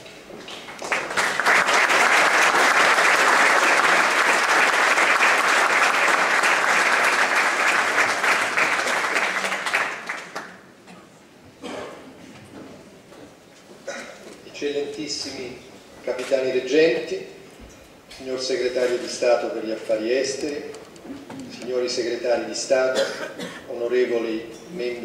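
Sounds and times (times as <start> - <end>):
audience applauding: 0.7 - 10.7.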